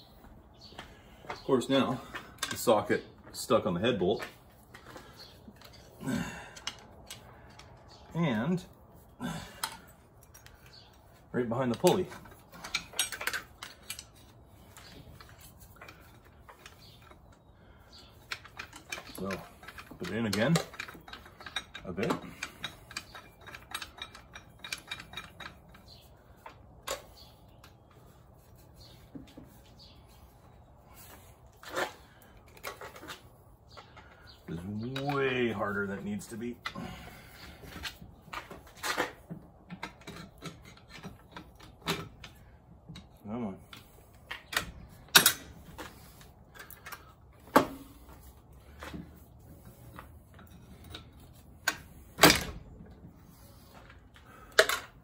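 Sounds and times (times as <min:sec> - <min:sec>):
hand tool clinking on metal: 0:18.3 - 0:26.0.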